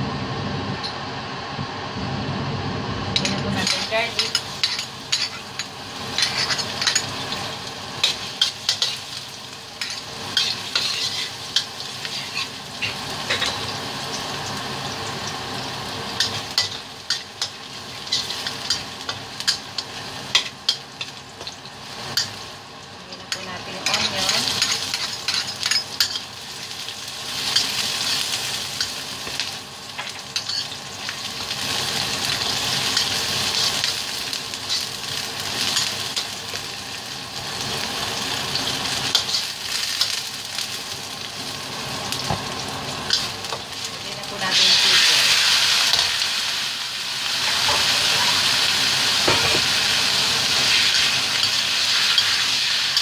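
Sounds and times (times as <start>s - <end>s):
garlic and onion sizzling in oil: 1.0s - 53.0s
metal spatula scraping a wok: 9.8s - 13.6s.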